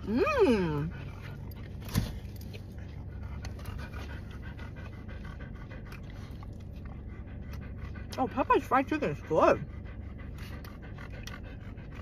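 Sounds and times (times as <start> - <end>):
dog panting: 0.5 - 12.0
faint chewing crunches: 1.0 - 8.2.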